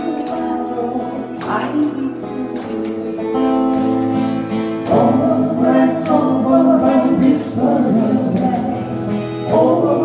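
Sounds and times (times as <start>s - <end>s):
strummed acoustic guitars: 0.0s - 10.0s
voices singing in harmony: 4.8s - 10.0s.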